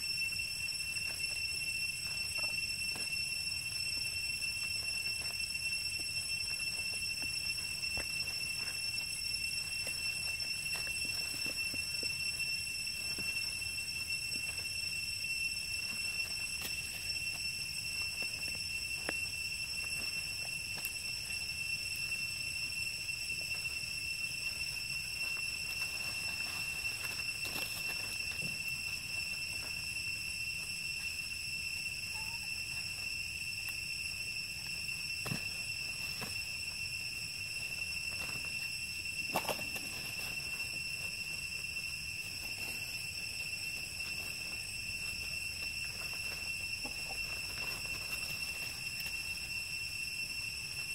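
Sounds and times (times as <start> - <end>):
high-pitched insect drone: 0.0 - 50.9
rustles in dry leaf litter: 25.1 - 29.6.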